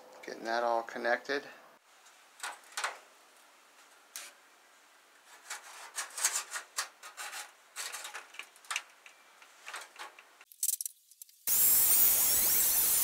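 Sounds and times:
sheet metal scraping and tapping: 5.3s - 10.3s.

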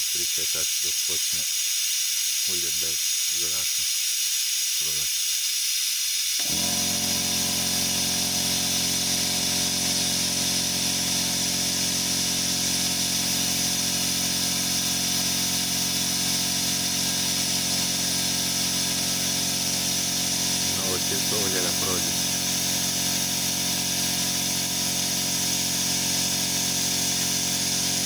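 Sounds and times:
steady hiss: 0.0s - 6.4s, 18.4s - 23.1s
electric pump running: 0.0s - 28.0s.

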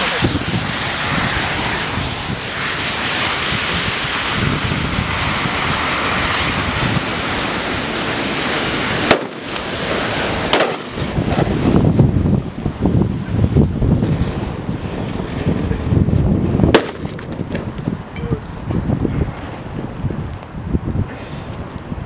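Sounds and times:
burning matches hissing: 0.0s - 22.0s
sharp bangs: 9.0s - 9.7s, 10.4s - 11.5s, 16.7s - 17.7s.

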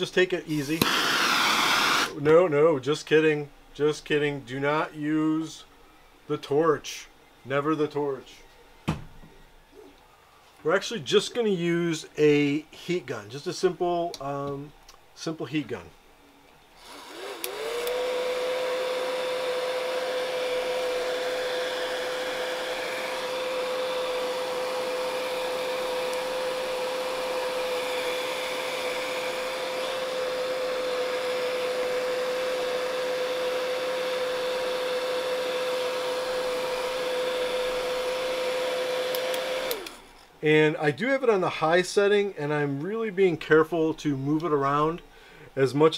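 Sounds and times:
heat gun fan whine: 0.0s - 40.4s
blown hot air rushing: 0.5s - 2.2s.

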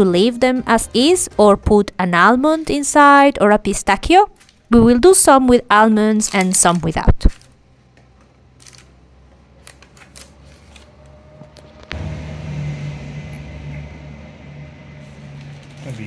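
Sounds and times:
steady low hum: 7.7s - 16.0s
paper rustling and clicks: 9.6s - 10.9s.

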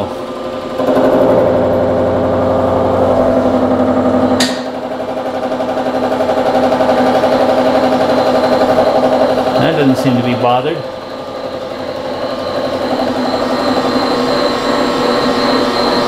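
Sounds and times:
milling machine cutting steel: 2.3s - 16.0s
sharp click: 4.4s - 4.7s.

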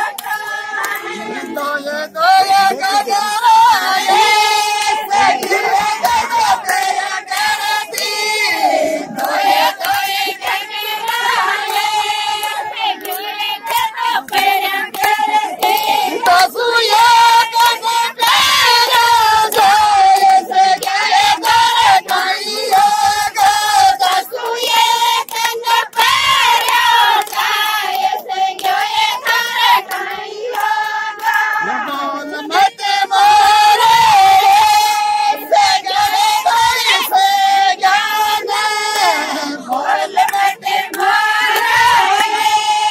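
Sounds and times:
hand claps: 0.0s - 34.9s, 35.5s - 42.9s
women singing unaccompanied: 0.0s - 42.9s.

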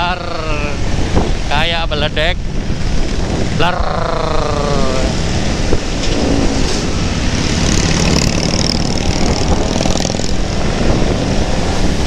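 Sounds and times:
motorcycle exhaust thundering: 2.6s - 11.7s
motorcycle engine running: 6.3s - 10.8s.

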